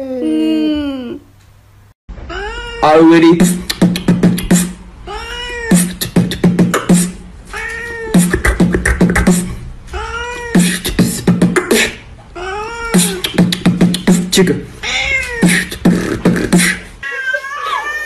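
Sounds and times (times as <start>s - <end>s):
beatbox percussion: 3.3s - 4.8s, 5.7s - 7.2s, 8.1s - 9.6s, 10.5s - 12.1s, 12.9s - 14.6s, 15.4s - 16.9s
cat meowing: 5.1s - 5.8s, 7.5s - 8.2s, 9.9s - 10.6s, 14.8s - 15.6s.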